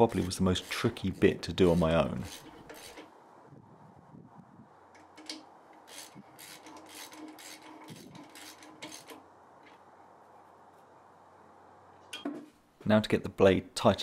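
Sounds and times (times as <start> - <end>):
wrench clicking on bolts: 5.0 - 9.2.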